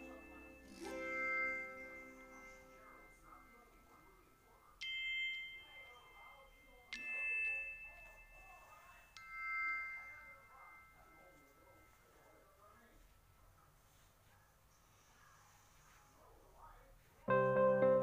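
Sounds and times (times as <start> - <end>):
chime-like music notes: 0.0 - 12.2.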